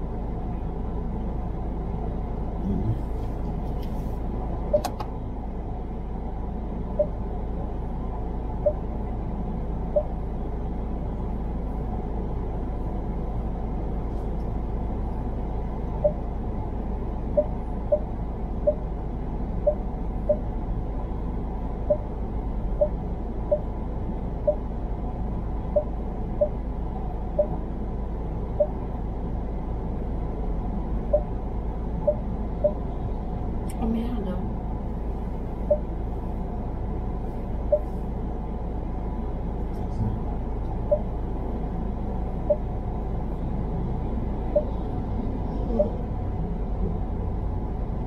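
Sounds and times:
car interior road rumble: 0.0 - 48.0
car cabin rumble: 2.6 - 5.7
short beeps: 7.0 - 7.2, 35.7 - 35.9, 40.9 - 41.1.

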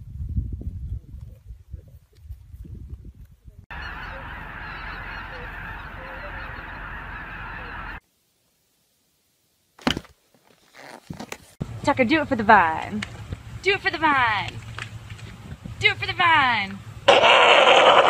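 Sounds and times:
geese honking: 3.7 - 8.0.

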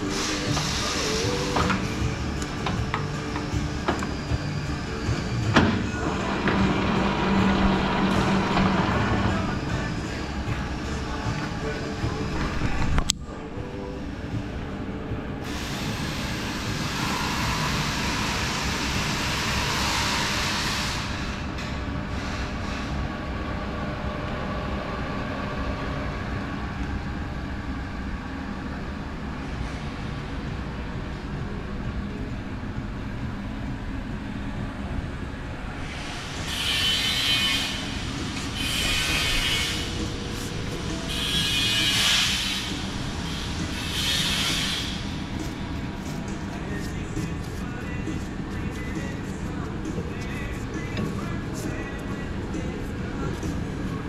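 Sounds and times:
loud even hiss: 0.0 - 2.1, 15.4 - 21.5, 35.8 - 45.7
shop machinery rumbling: 0.0 - 54.0.

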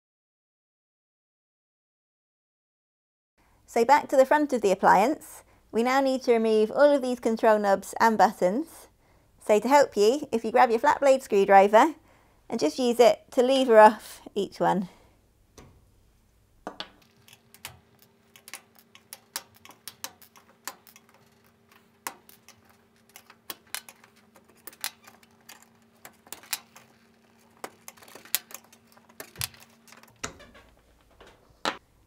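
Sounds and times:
plastic knobs clicking and clacking: 17.0 - 31.5.

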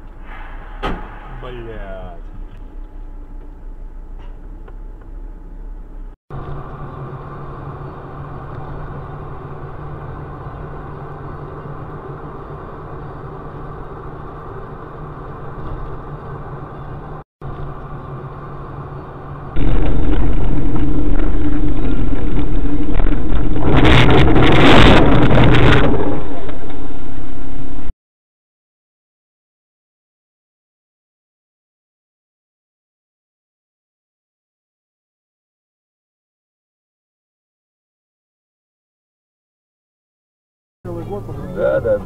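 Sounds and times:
car engine and road hum: 0.0 - 27.9, 40.9 - 42.0
harsh noisy burst: 19.6 - 26.4.

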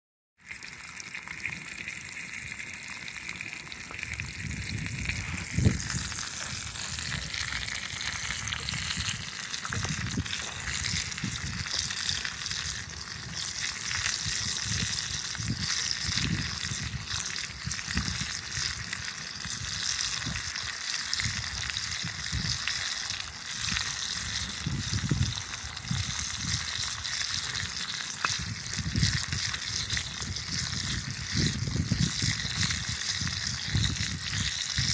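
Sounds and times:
bacon sizzling in a skillet: 0.4 - 34.9.

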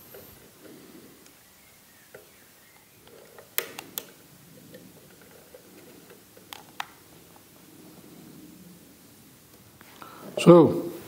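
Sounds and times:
sharp clicks: 2.1 - 4.8
rustling of hands and metal parts: 2.1 - 8.3.

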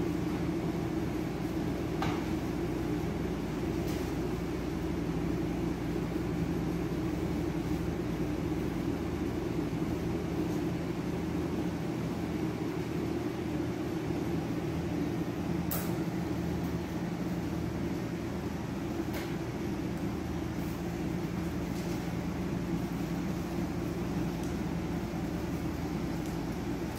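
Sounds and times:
low mechanical hum: 0.0 - 26.9.

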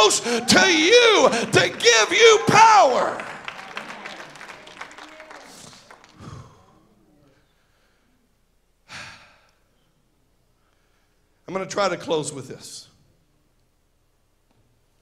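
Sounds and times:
congregation clapping: 0.0 - 6.8
breath into a microphone: 5.6 - 6.8, 10.6 - 11.4.

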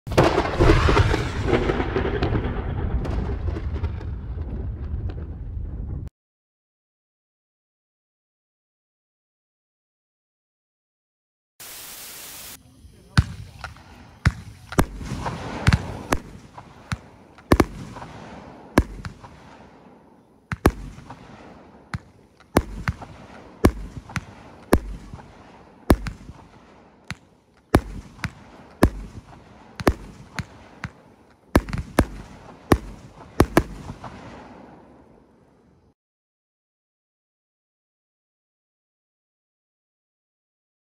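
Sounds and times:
rushing firework hiss: 11.6 - 18.3
firework cake reports: 11.6 - 34.2.

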